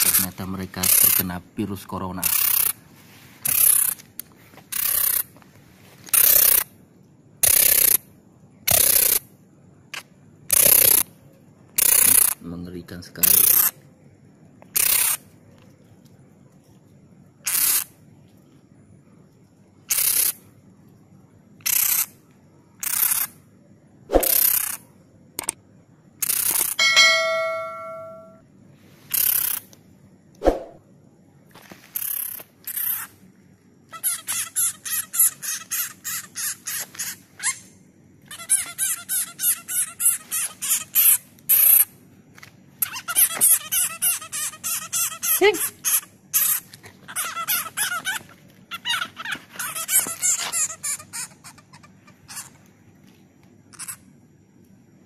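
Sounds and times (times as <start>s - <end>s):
bat chattering calls: 0.0s - 1.3s, 2.2s - 2.8s, 14.8s - 15.2s, 17.5s - 17.9s, 21.6s - 22.1s, 53.7s - 54.0s
descending chime sound effect: 26.8s - 28.4s.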